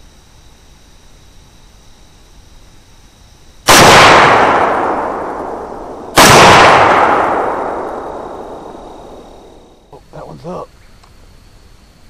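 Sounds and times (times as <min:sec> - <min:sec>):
rifle shots with echo: 0:03.7 - 0:09.8.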